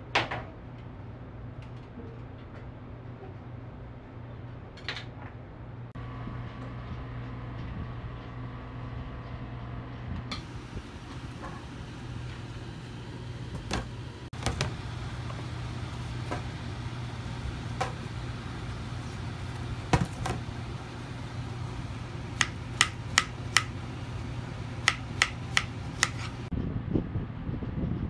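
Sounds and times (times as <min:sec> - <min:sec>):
low hum: 0:06.0 - 0:28.0
knife tapping on cutting board: 0:22.4 - 0:23.8, 0:24.8 - 0:26.3.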